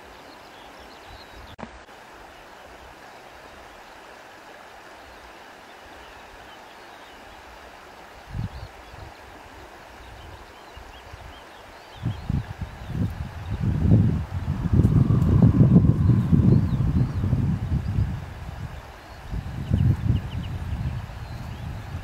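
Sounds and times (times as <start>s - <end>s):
running water: 0.0s - 22.0s
wind buffeting microphone: 8.3s - 9.2s, 11.0s - 22.0s.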